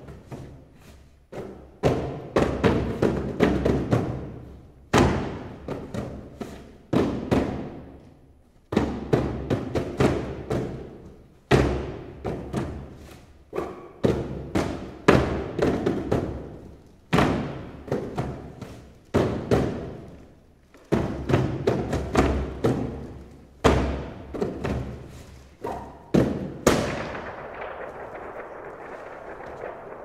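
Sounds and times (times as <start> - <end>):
paper and cardboard percussion: 8.7 - 30.0.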